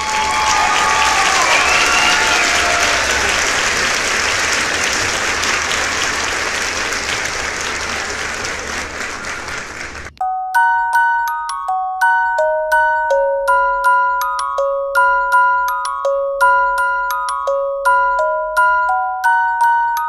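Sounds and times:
rising whistle-like tones: 0.0s - 3.3s
crowd applause: 0.0s - 10.1s
glockenspiel jingle: 10.2s - 20.0s.

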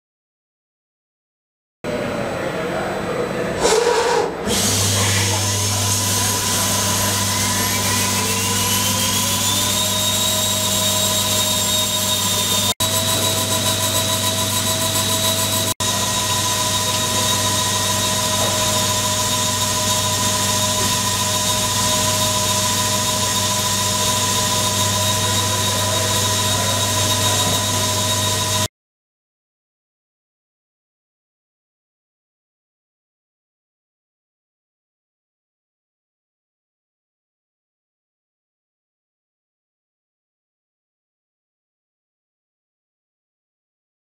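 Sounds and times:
grinding spindle whining: 3.6s - 28.7s.

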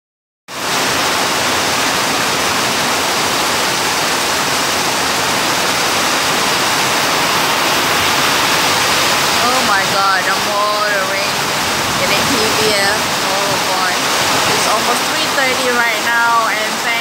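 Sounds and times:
heavy rain falling: 0.5s - 17.0s
water streaming off roof: 0.5s - 17.0s.

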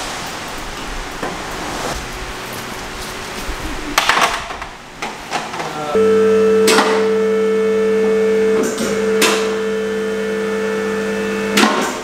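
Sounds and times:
hydraulic pump motor humming: 6.0s - 12.0s.

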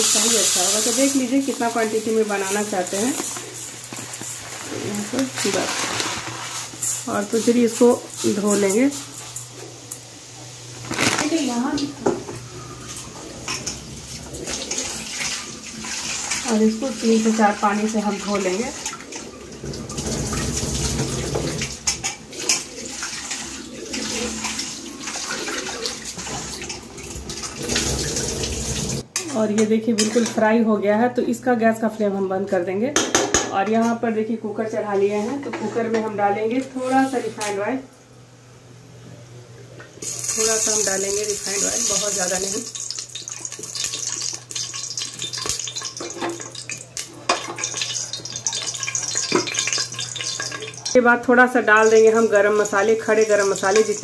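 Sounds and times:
oil sizzling and crackling: 0.0s - 29.2s, 40.0s - 54.0s.

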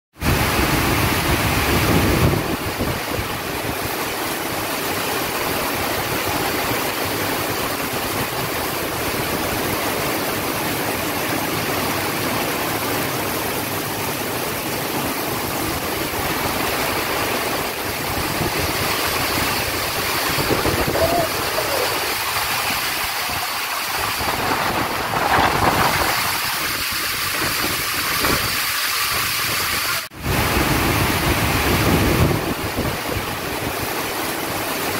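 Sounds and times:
heavy rain pouring: 0.2s - 34.9s.

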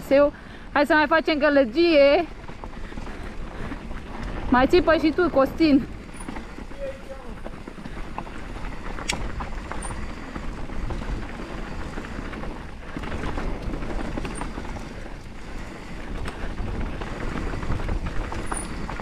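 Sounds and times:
bike tyres rumbling over stones: 0.0s - 19.0s
wind noise on microphone: 0.0s - 19.0s
bike knocks and rattles: 1.8s - 19.0s.

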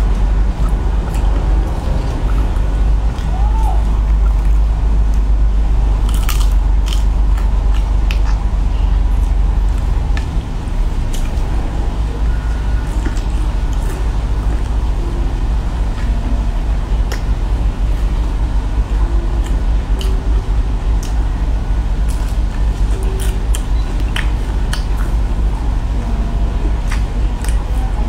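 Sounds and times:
steady low hum: 0.0s - 28.0s
shrimp shells cracking and crunching: 6.0s - 8.4s.

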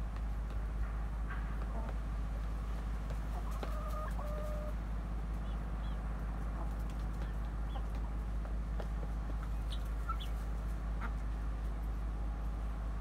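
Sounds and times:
chickens clucking: 1.5s - 2.0s, 2.8s - 12.0s.

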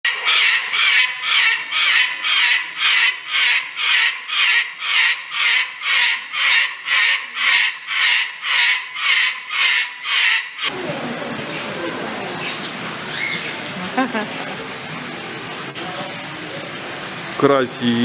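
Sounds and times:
cockatoo screeching: 0.1s - 10.7s, 13.1s - 13.6s.

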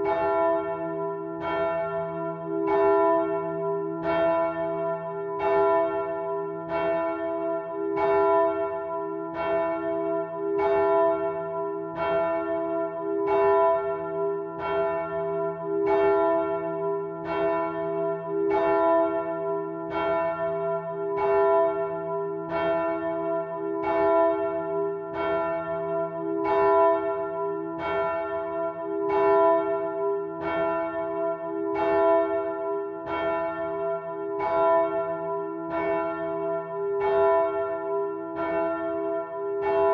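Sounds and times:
church bell ringing: 0.0s - 39.9s.

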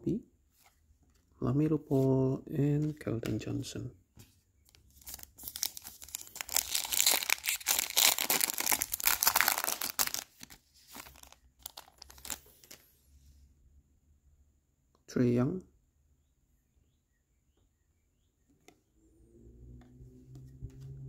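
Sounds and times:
cards clicking and rustling: 4.7s - 12.8s
foil wrapper tearing and crinkling: 5.0s - 12.8s.

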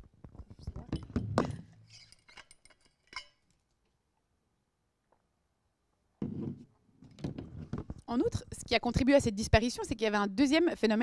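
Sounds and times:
microphone knocks and rustle: 6.2s - 8.1s.

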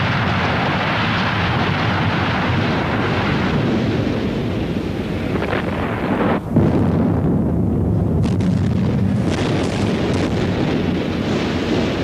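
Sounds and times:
building collapsing rumble: 0.0s - 12.0s
sharp cracks: 8.2s - 12.0s.

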